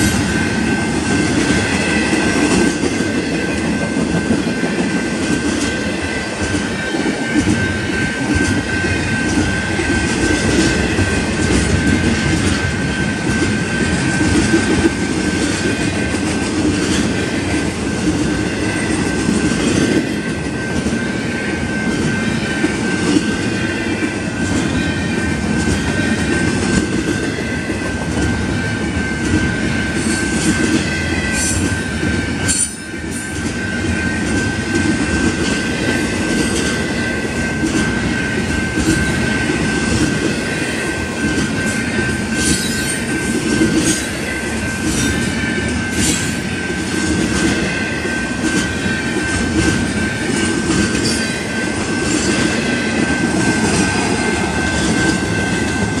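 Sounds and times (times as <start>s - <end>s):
train wheels rumbling on track: 0.0s - 56.0s.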